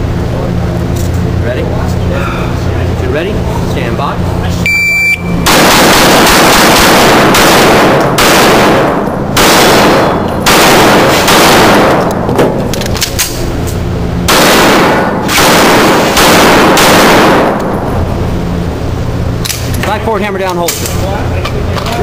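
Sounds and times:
loud echoing pistol shots: 5.4 - 12.3, 14.2 - 17.8.

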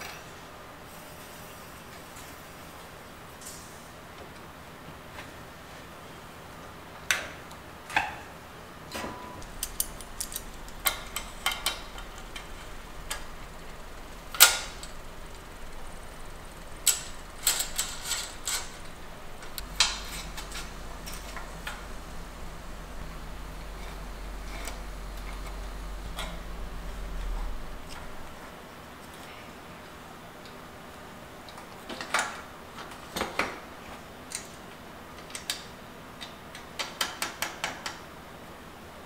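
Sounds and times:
metal clicks of bike parts: 16.6 - 21.8.

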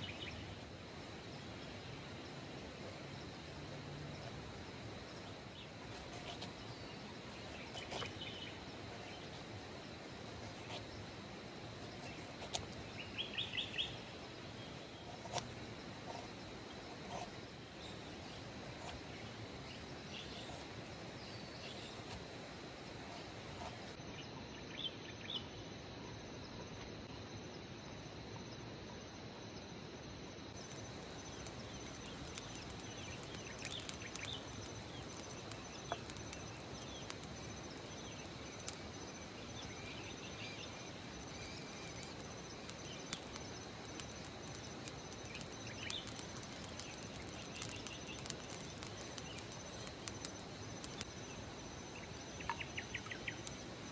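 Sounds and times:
insects buzzing: 0.0 - 53.9
wood fire crackling: 30.4 - 53.9
birds chirping: 31.0 - 53.9.

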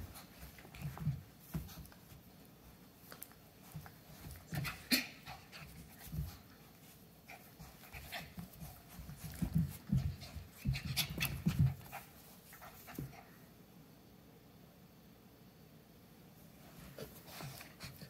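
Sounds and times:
scuffles: 0.0 - 13.1.

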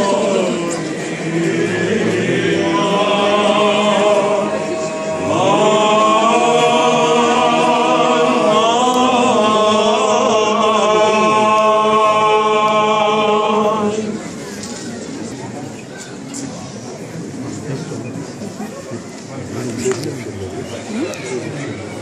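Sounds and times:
group of voices chanting: 0.0 - 14.2.

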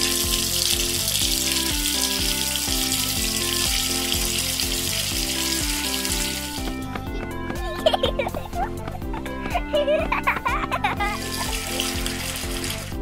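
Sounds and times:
water running from faucet: 0.0 - 7.0, 10.1 - 13.0
background music: 0.0 - 13.0.

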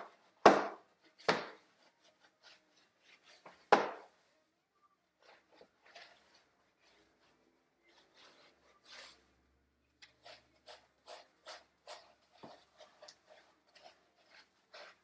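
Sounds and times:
hands scrubbing wet fur: 10.1 - 15.0.

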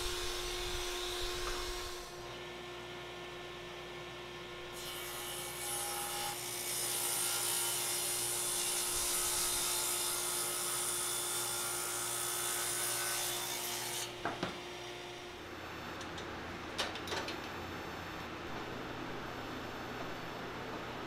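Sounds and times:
table saw hum: 0.0 - 3.2.

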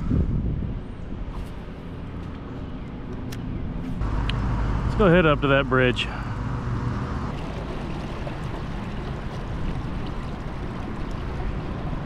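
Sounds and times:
water rushing along kayak hull: 7.3 - 12.0.

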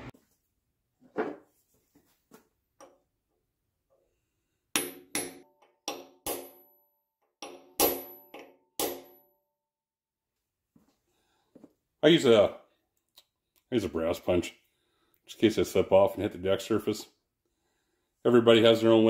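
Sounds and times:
hammer striking metal punch: 4.8 - 6.8, 7.4 - 9.3.

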